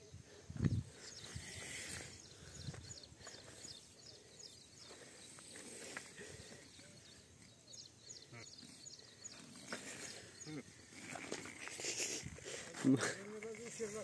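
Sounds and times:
faint low animal calls: 0:08.1 - 0:13.0.

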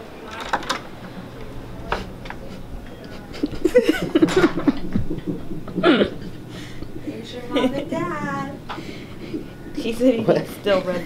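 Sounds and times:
people laughing and murmuring: 0:00.0 - 0:11.0
door handle clicking: 0:00.3 - 0:00.9.

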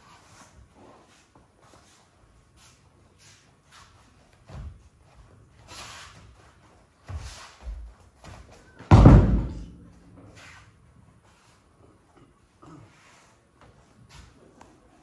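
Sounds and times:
bare feet shuffling on mats: 0:00.0 - 0:12.1
body thudding onto mat: 0:08.8 - 0:10.0
dull thuds: 0:08.8 - 0:10.2.

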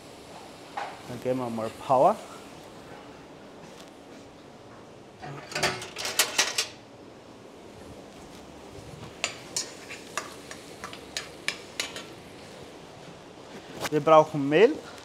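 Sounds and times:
metal kitchen utensils clattering: 0:05.2 - 0:06.8.

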